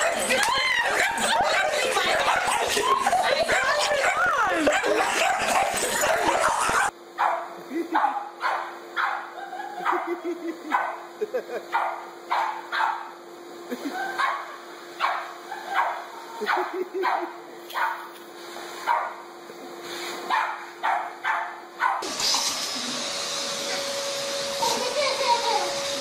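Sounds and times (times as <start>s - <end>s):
dog barking in yaps: 0.0s - 10.1s, 11.7s - 13.1s, 14.1s - 18.0s, 20.3s - 22.1s
vacuum cleaner running: 0.0s - 26.0s.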